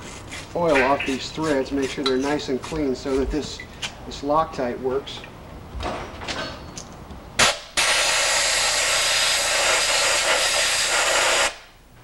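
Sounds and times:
pressurised spray hissing: 0:07.8 - 0:11.6.

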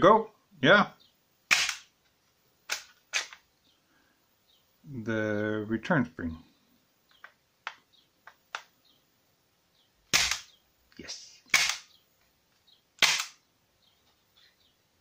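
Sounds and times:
pistol action clicks: 0:01.5 - 0:01.9, 0:02.7 - 0:03.4, 0:10.1 - 0:10.6, 0:11.5 - 0:11.9, 0:13.0 - 0:13.4
prop pistol cracks: 0:01.5 - 0:01.9, 0:02.7 - 0:03.4, 0:10.1 - 0:10.6, 0:11.5 - 0:11.9, 0:13.0 - 0:13.4.

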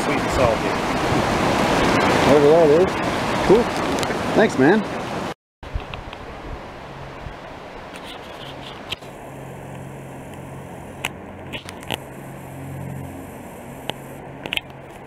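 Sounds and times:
outdoor rushing noise: 0:08.5 - 0:15.0.

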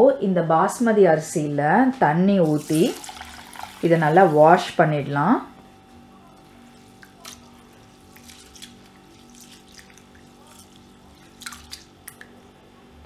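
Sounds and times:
rice being washed in water: 0:02.4 - 0:04.8, 0:06.4 - 0:12.2.

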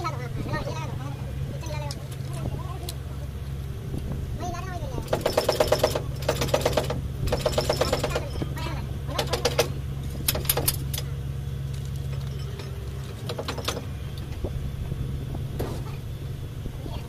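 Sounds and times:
diesel engine humming: 0:00.0 - 0:17.0
fast mechanical rattle: 0:04.9 - 0:11.1
metal chain clinking: 0:05.1 - 0:09.6.

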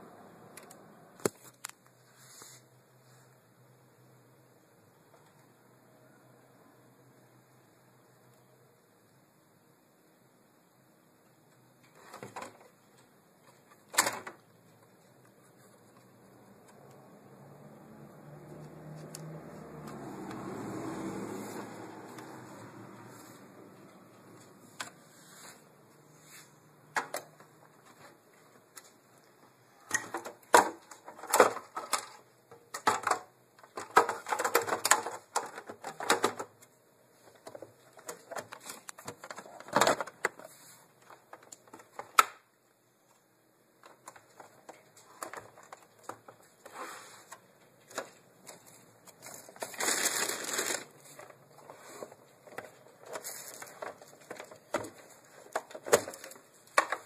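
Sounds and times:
crackling rustles: 0:27.6 - 0:42.2, 0:43.0 - 0:57.0.

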